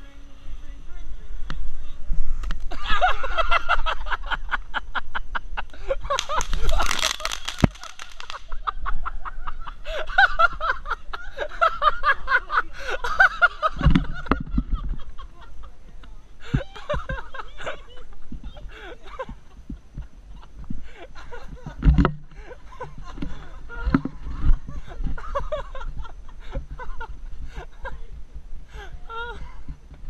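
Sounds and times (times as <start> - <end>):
people laughing and shrieking: 2.7 - 15.6, 16.4 - 19.6
loud hiss: 5.8 - 8.6.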